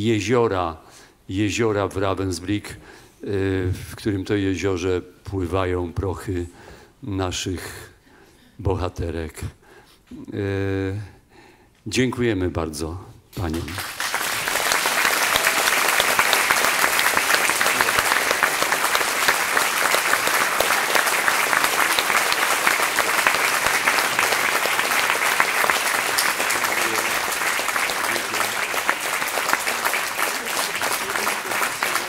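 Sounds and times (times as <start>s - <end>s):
audience applauding: 13.5s - 32.0s.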